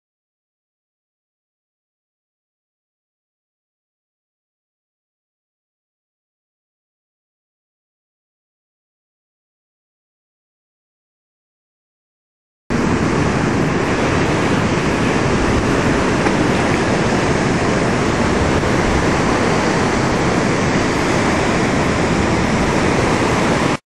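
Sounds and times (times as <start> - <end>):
loud steady rushing noise: 12.7 - 23.8.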